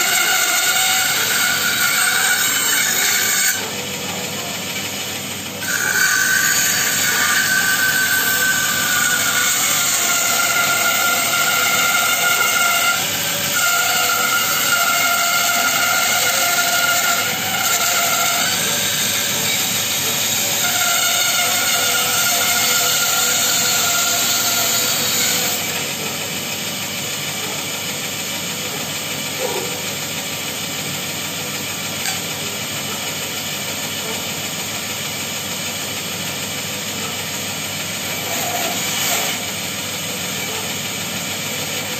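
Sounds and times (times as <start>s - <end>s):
bandsaw cutting wood: 0.0s - 41.9s.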